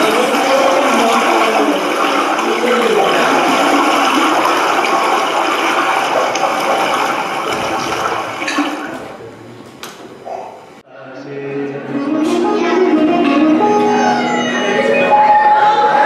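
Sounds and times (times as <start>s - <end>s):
rushing bubbling water over loudspeakers: 0.0s - 9.3s.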